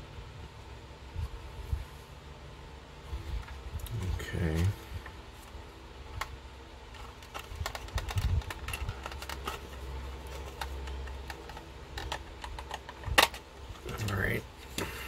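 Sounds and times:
plastic model car clicking: 6.9 - 14.2.

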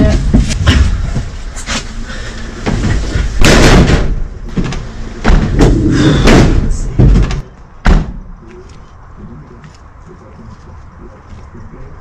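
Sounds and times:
van doors slamming: 2.6 - 8.2.

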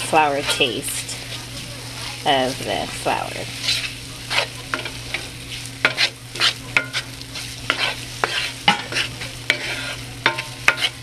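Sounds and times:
fat sizzling: 0.0 - 11.0
utensil scraping skillet: 0.0 - 11.0.

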